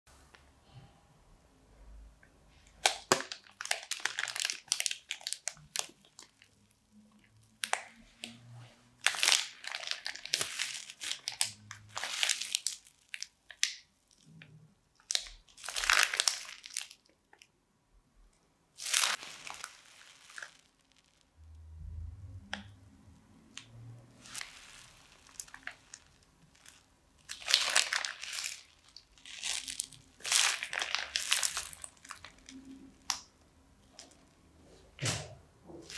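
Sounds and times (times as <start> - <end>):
plastic bag crinkling: 2.6 - 8.4, 9.0 - 14.4, 15.0 - 17.2, 18.8 - 21.2, 24.2 - 34.3
hand squeezing slimy sponge: 2.6 - 17.1, 18.8 - 21.2, 23.6 - 33.2.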